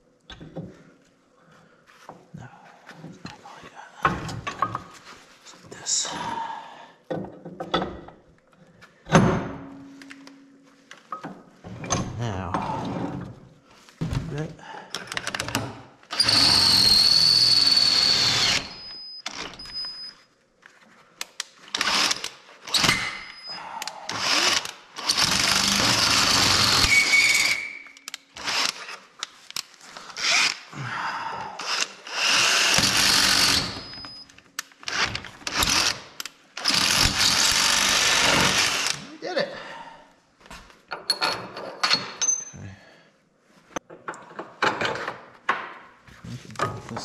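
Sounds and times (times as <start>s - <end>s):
cordless drill boring into concrete: 16.1s - 19.7s, 21.8s - 23.4s, 24.1s - 27.8s, 28.4s - 28.9s, 30.2s - 30.6s, 31.6s - 34.1s, 34.9s - 36.0s, 36.6s - 39.0s.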